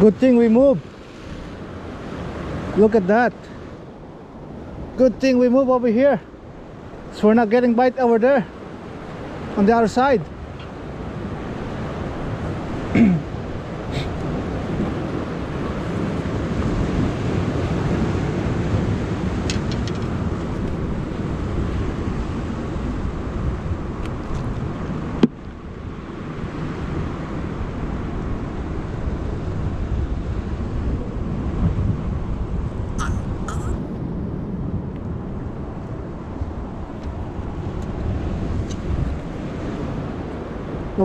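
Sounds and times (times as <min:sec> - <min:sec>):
surf against rocks: 0:00.0 - 0:41.0
wind buffeting microphone: 0:08.5 - 0:41.0.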